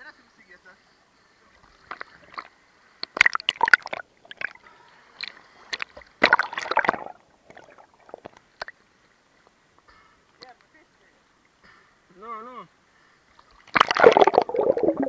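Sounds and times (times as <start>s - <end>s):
water splashing and sloshing: 1.6s - 4.6s, 5.2s - 8.8s, 13.3s - 15.0s.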